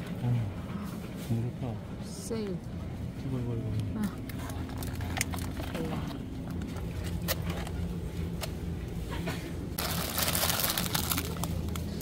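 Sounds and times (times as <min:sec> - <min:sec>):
low store hum: 0:00.0 - 0:12.0
plastic bag crinkling: 0:09.8 - 0:12.0.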